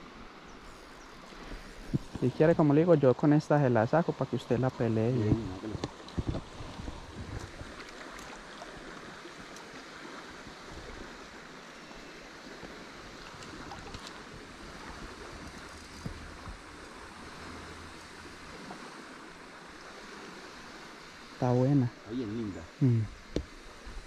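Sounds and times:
river water running: 0.0s - 24.0s.

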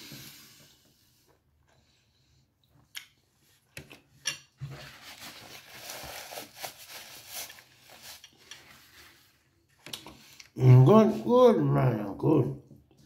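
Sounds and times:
paper napkin rustling: 4.6s - 9.6s.

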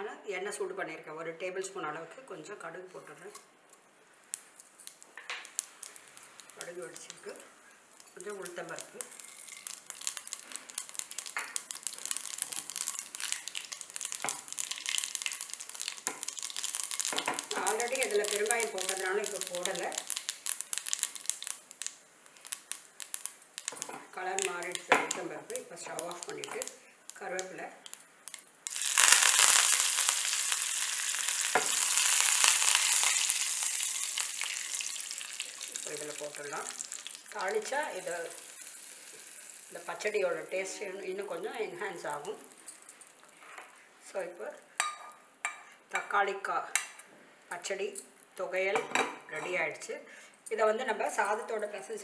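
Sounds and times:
seeds popping in hot oil: 4.2s - 47.0s.

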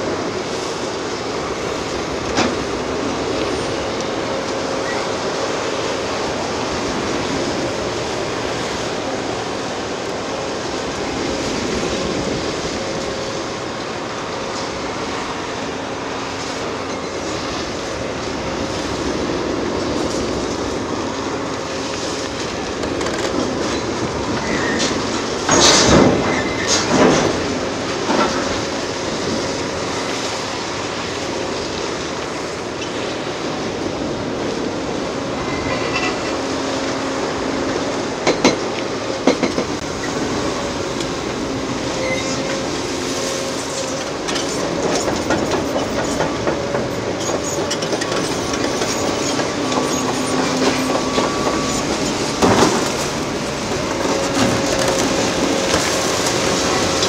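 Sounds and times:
excavator running under load: 0.0s - 57.0s
faint hydraulic whine: 39.8s - 57.0s.

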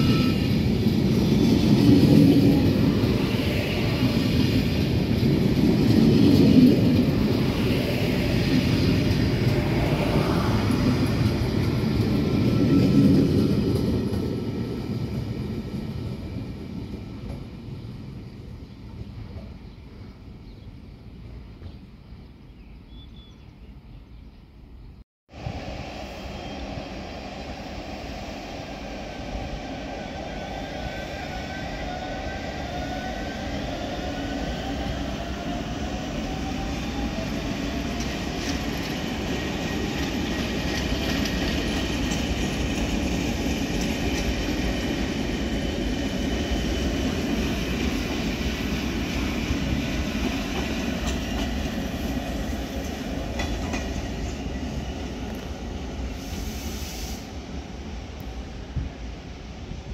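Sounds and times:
wheels clacking over rail joints: 52.8s - 54.5s.

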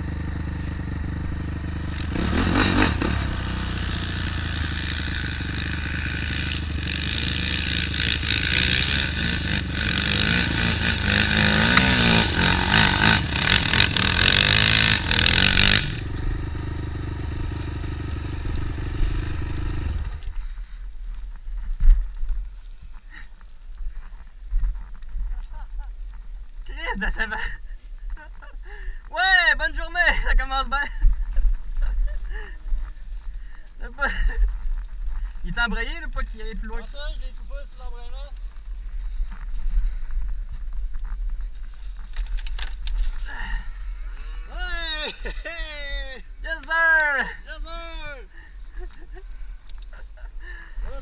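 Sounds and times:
atv engine running: 0.0s - 20.7s.

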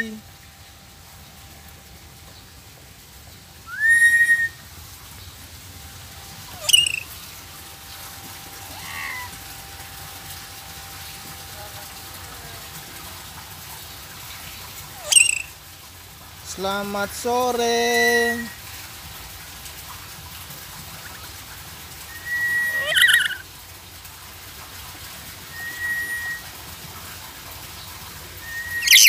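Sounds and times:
parrot whistling and calling: 3.6s - 4.6s, 6.6s - 7.1s, 15.0s - 15.6s, 22.1s - 23.4s, 25.5s - 26.5s, 28.4s - 29.0s.

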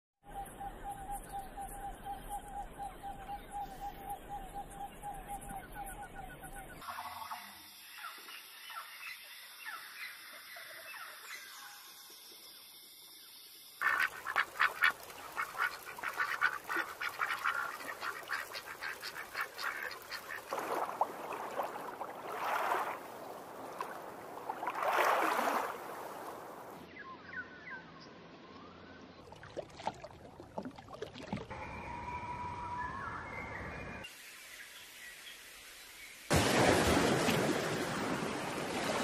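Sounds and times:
faint whistling bird calls: 0.3s - 11.8s, 31.6s - 34.8s
ducks quacking: 13.8s - 20.9s.

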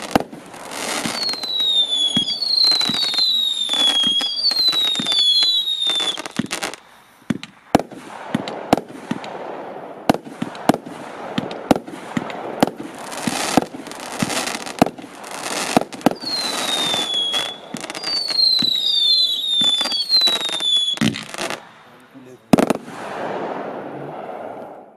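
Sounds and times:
firework whistles falling in pitch: 0.0s - 7.5s, 15.4s - 21.6s
firework shots and bangs: 0.0s - 21.8s, 22.5s - 24.8s
firework crackling: 0.0s - 24.9s.

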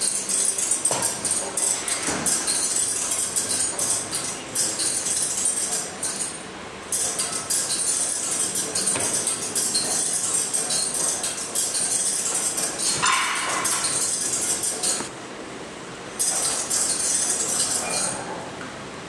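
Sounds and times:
kinetic sculpture rattling and clinking: 9.6s - 15.0s.

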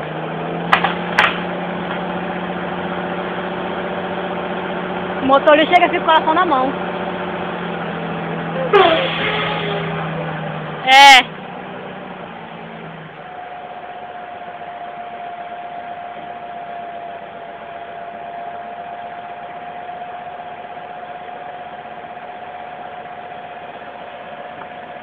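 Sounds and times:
truck engine running: 0.0s - 25.0s
high whine: 7.2s - 25.0s.

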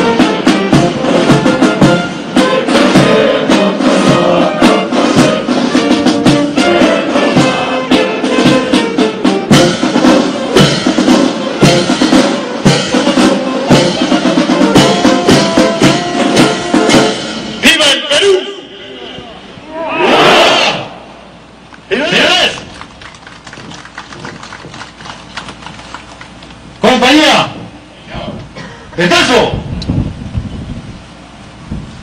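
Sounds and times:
snare and bass drum beat: 0.0s - 17.2s
brass band playing a march: 0.0s - 18.8s.

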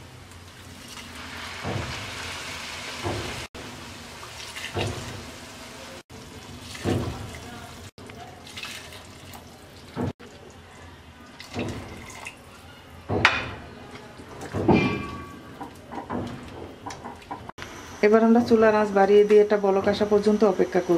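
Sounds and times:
hot water pouring and splashing: 0.0s - 12.7s.

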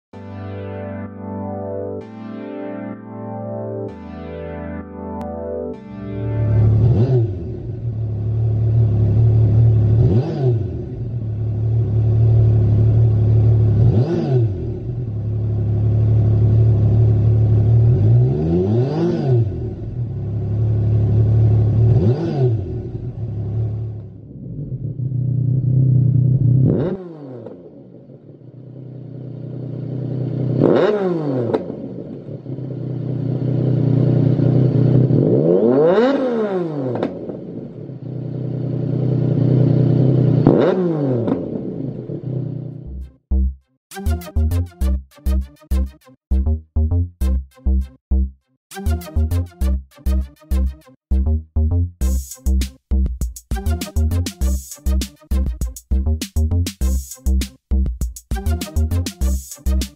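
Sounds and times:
motorcycle engine idling and revving: 6.7s - 43.5s.

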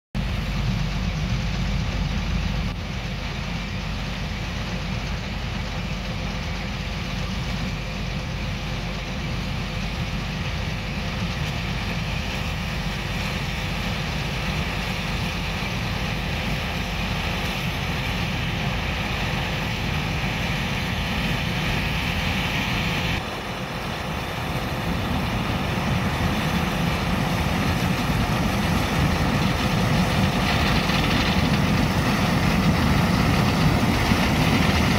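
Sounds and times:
diesel farm machinery droning: 0.2s - 34.9s.

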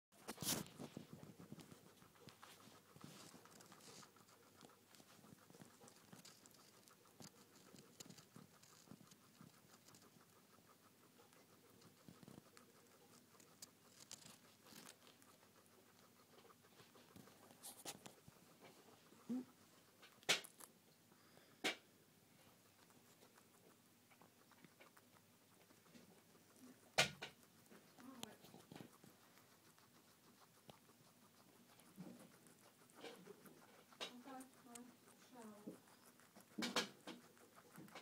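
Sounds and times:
guinea pig chewing greens: 0.1s - 38.0s.

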